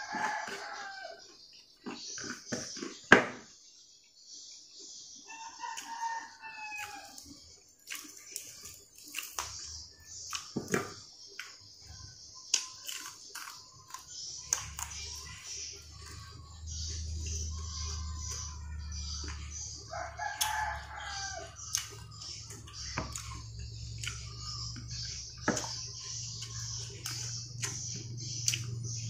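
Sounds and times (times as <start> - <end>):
eating by hand clicks and smacks: 7.0 - 11.6, 12.4 - 16.4, 21.6 - 29.0.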